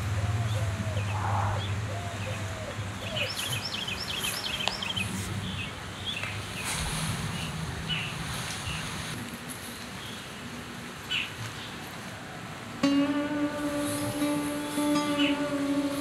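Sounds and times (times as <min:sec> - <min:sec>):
small birds chirping: 0:00.4 - 0:06.7.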